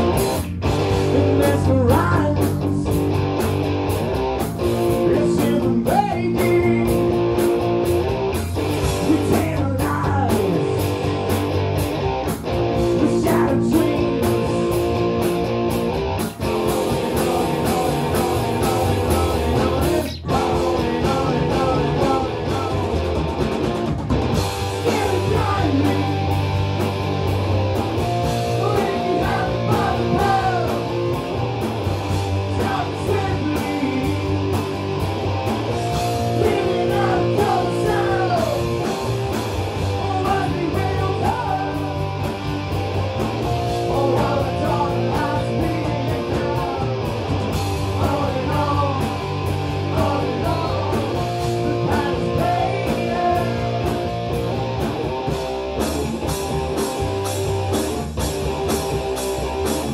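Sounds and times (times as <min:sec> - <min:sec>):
bass guitar: 0:00.0 - 0:59.9
drum kit: 0:00.0 - 0:59.9
electric guitar: 0:00.0 - 0:59.9
person singing: 0:01.0 - 0:02.9, 0:04.8 - 0:07.2, 0:09.0 - 0:10.8, 0:12.9 - 0:14.5, 0:16.8 - 0:22.9, 0:24.8 - 0:26.2, 0:28.4 - 0:31.0, 0:32.5 - 0:34.7, 0:36.2 - 0:38.9, 0:40.0 - 0:42.0, 0:43.8 - 0:47.1, 0:47.9 - 0:49.2, 0:49.8 - 0:54.0.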